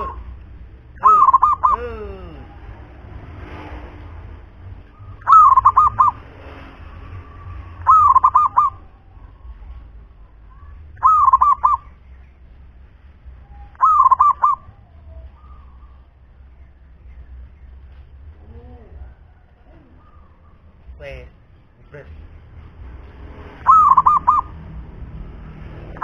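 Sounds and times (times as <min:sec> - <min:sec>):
dove cooing: 0:01.0 - 0:02.4, 0:05.2 - 0:06.2, 0:07.8 - 0:09.0, 0:11.0 - 0:11.8, 0:13.7 - 0:16.0, 0:23.6 - 0:24.6.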